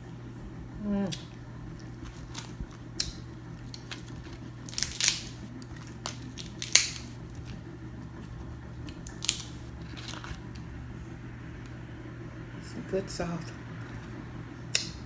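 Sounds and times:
crab shells cracking: 1.1 - 7.6, 8.8 - 10.7.

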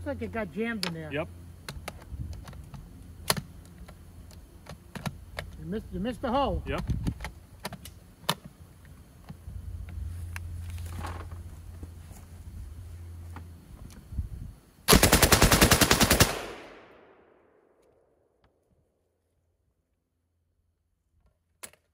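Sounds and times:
machine gun burst: 14.9 - 16.8
gunfire echo: 14.9 - 17.7.

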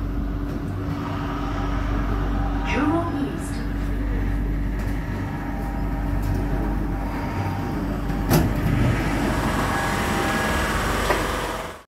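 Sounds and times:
faint motor whine: 0.0 - 11.8
train running rumble: 0.0 - 11.8.

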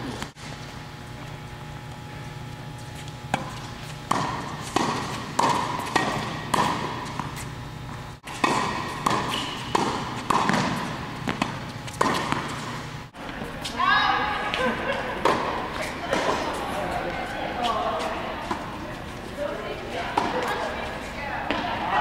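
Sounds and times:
steady low hum: 0.0 - 22.0
tennis ball struck by racket: 3.3 - 7.4, 8.2 - 12.8.

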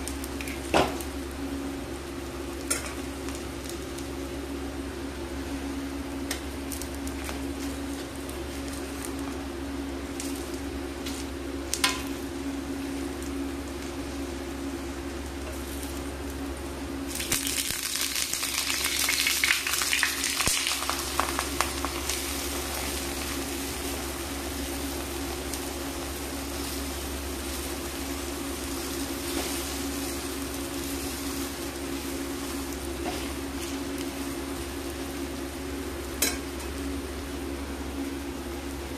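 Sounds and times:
pancake sizzling in oil: 0.0 - 38.9
oil crackling: 17.1 - 35.4.

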